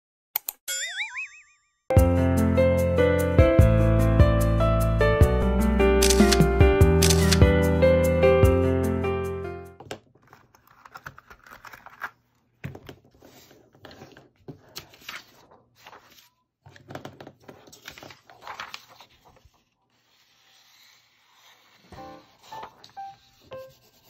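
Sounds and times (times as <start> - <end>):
paper rustling and sliding: 10.2 - 24.0.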